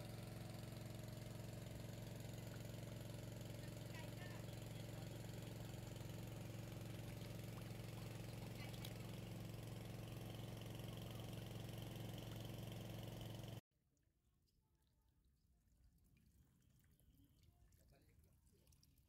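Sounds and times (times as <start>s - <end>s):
small engine idling: 0.0s - 13.6s.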